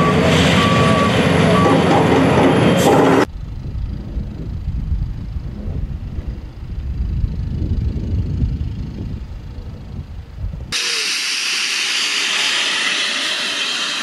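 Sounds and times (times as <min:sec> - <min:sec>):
low outdoor rumble: 0:00.0 - 0:10.8
loud steady fog jet hiss: 0:10.7 - 0:14.0.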